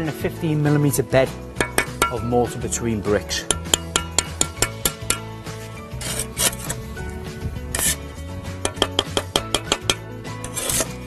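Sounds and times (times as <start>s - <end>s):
background music with steady beat: 0.0s - 11.0s
trowel scraping wet mortar: 3.4s - 6.9s, 7.7s - 11.0s.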